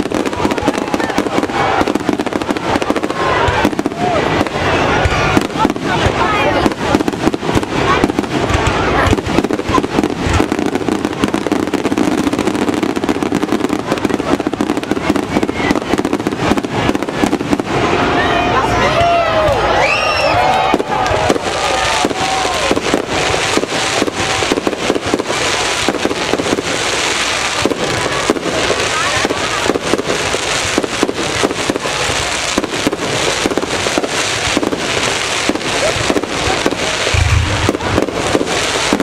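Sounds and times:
fireworks popping and crackling: 0.0 - 39.0
low thump: 37.1 - 37.9.

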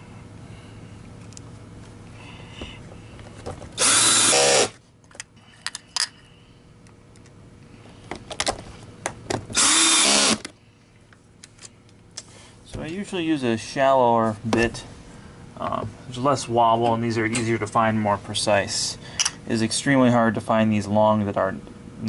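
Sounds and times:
cordless drill driving screws: 3.8 - 4.8, 9.6 - 10.4.

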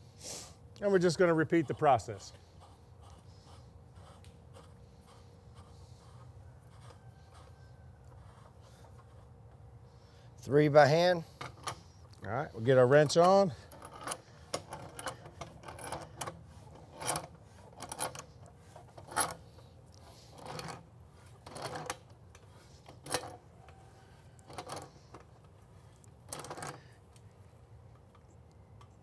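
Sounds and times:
pipe wrench clinks and scrapes: 10.8 - 27.0.

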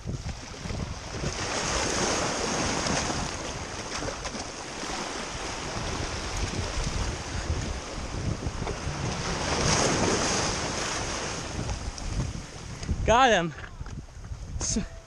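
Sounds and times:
sea waves washing over rocks: 0.0 - 13.4
wind rumble on microphone: 0.0 - 15.0.

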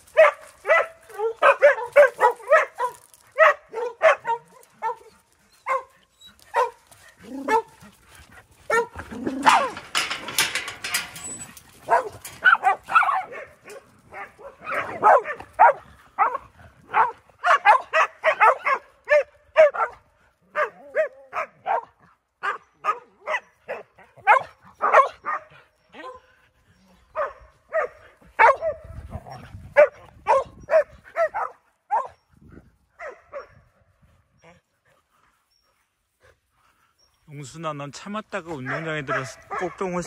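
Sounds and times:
dogs barking: 0.0 - 8.0, 8.6 - 26.3, 27.1 - 32.2, 33.0 - 33.7, 38.5 - 40.0.

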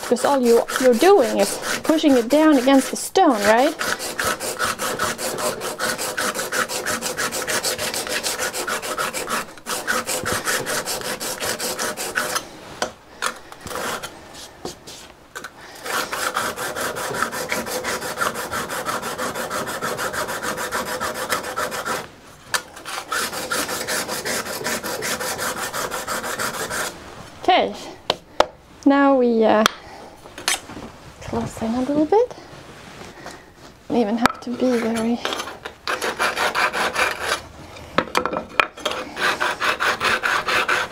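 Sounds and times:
scraper rubbing on sharpening stone: 0.0 - 12.5, 13.6 - 14.1, 15.8 - 22.1, 22.8 - 27.0, 34.5 - 37.4, 38.8 - 40.9.

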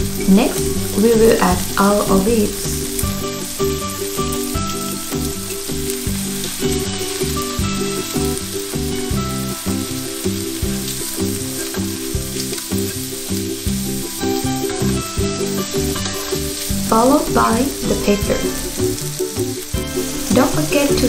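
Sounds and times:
food sizzling in frying pan: 0.0 - 21.0.

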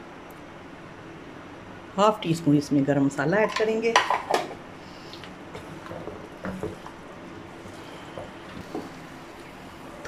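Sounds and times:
pot of curry hissing: 7.4 - 10.0.

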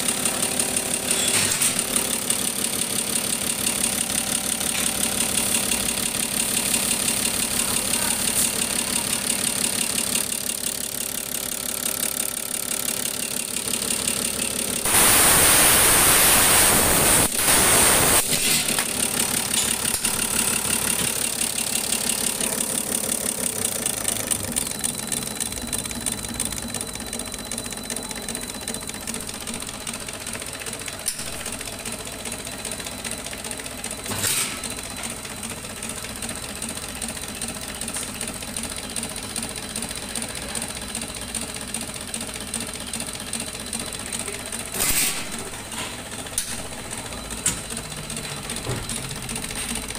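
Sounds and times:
machine running with high whine: 0.0 - 49.9
loud rushing hiss: 14.9 - 18.4.

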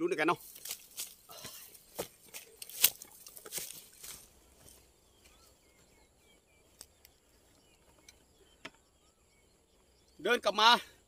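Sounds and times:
rustling in plants: 0.3 - 8.0
faint high bird chirps: 4.1 - 11.0.

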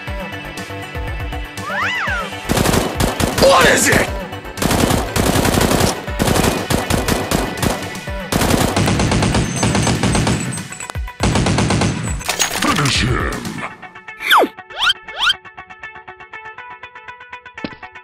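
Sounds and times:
machine-gun fire: 2.5 - 12.7.

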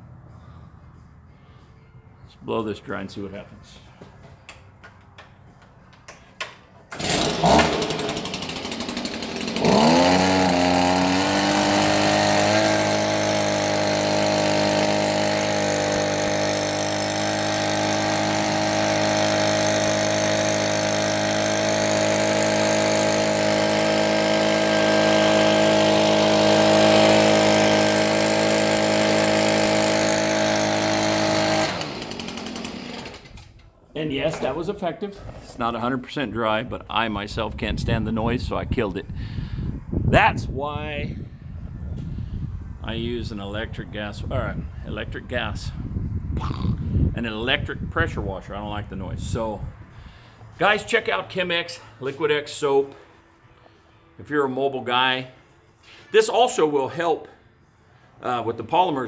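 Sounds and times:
leaf blower revving: 6.9 - 33.5.

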